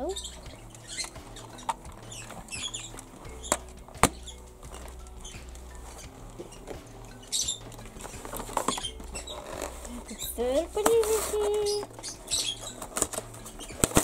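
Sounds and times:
plastic packaging rustling: 7.6s - 14.0s.

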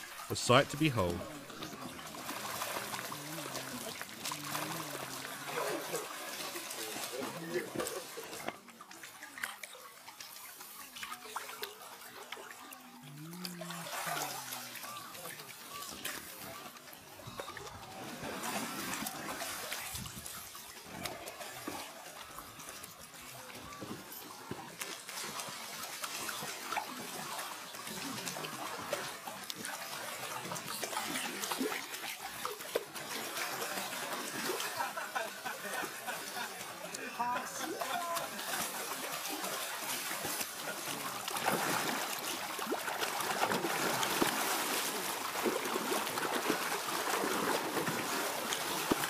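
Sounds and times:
water splashing and sloshing: 0.0s - 49.0s
faint voice: 0.3s - 2.2s.

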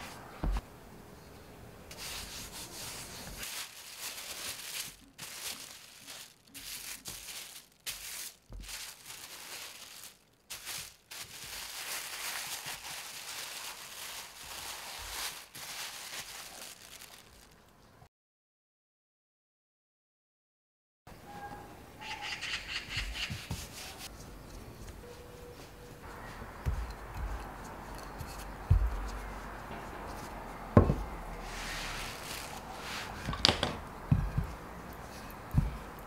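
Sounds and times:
plastic bag crinkling: 2.0s - 17.7s, 31.5s - 33.8s.

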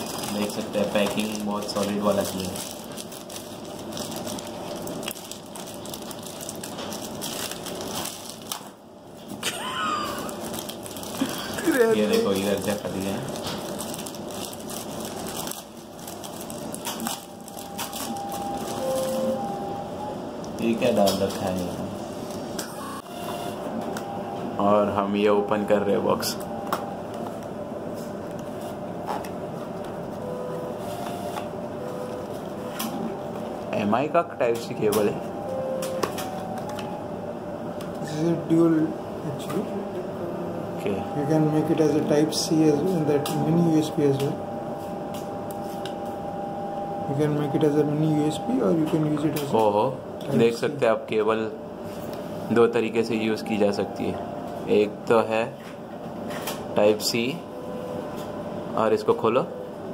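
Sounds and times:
plastic mailer crinkling: 0.0s - 8.8s, 10.1s - 19.3s.

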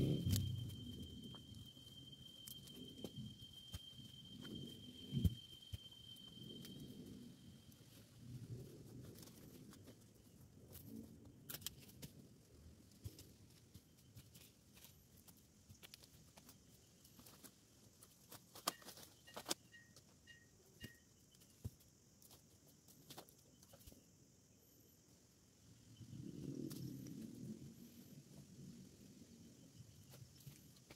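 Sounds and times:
twigs clicking and snapping: 11.5s - 12.2s, 12.9s - 19.6s.

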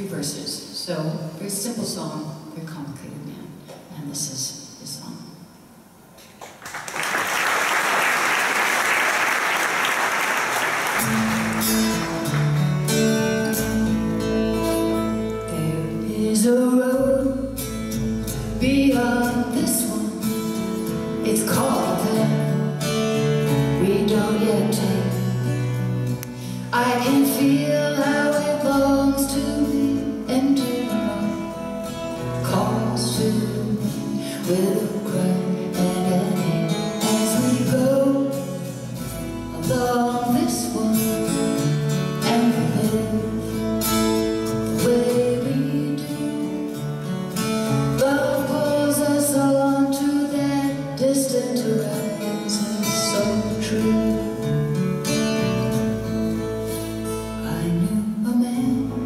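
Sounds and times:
acoustic guitar: 6.0s - 59.0s
audience applause: 6.4s - 12.9s.

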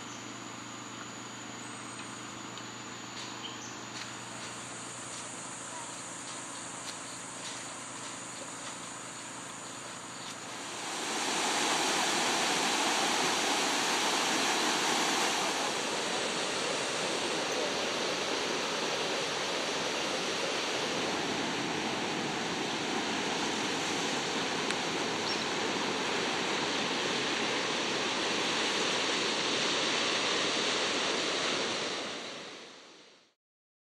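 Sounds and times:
ocean surf washing ashore: 10.4s - 33.2s.

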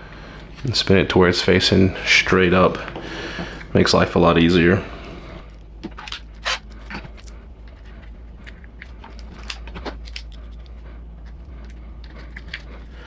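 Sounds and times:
steady low hum: 0.0s - 13.0s
plastic and metal parts clicking: 5.8s - 12.9s.

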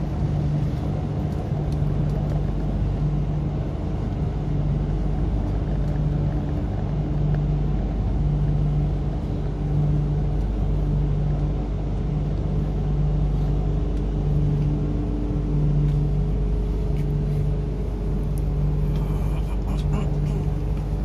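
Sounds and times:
low hum: 0.0s - 21.0s
train interior rumble: 0.0s - 21.0s.

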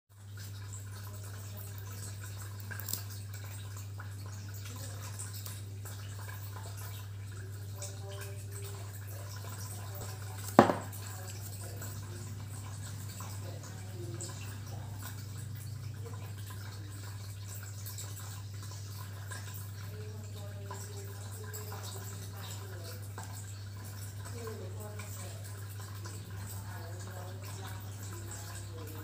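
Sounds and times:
glass bottle knocking on table: 10.5s - 11.0s.

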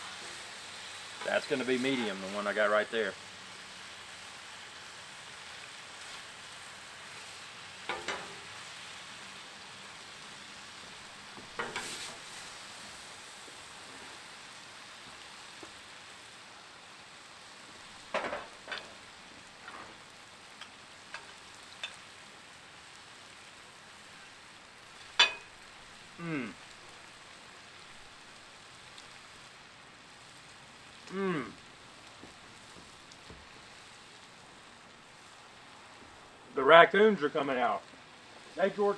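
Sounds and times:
steak sizzling on a griddle: 0.0s - 38.9s.

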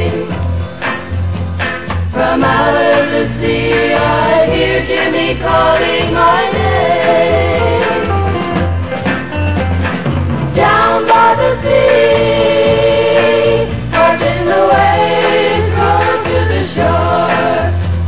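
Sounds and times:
choir-like vocals holding notes: 0.0s - 0.4s, 2.2s - 8.4s, 10.6s - 17.8s
plodding bass line: 0.0s - 18.0s.

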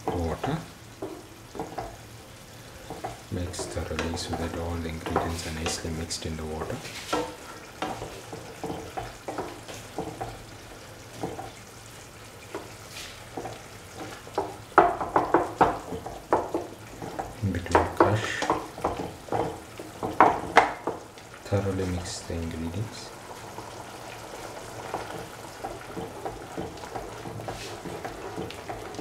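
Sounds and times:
utensil scraping and knocking pan: 2.9s - 10.4s, 24.8s - 29.0s.

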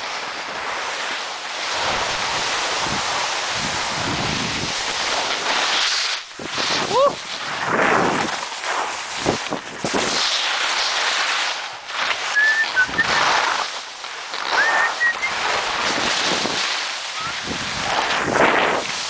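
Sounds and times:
skis scraping over snow: 0.0s - 19.0s
wind on microphone: 1.8s - 5.4s, 6.3s - 8.4s, 9.0s - 10.3s, 12.3s - 13.6s, 14.5s - 19.0s.

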